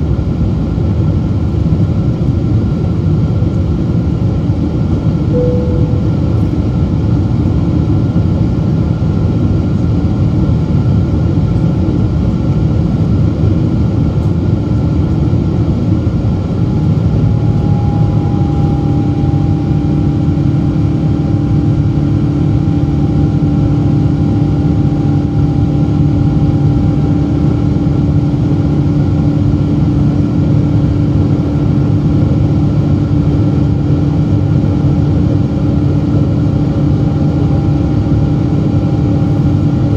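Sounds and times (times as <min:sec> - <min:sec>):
jet engine rumble: 0:00.0 - 0:39.9
steady hum: 0:02.5 - 0:39.9
high whine: 0:05.2 - 0:08.5, 0:15.2 - 0:31.6.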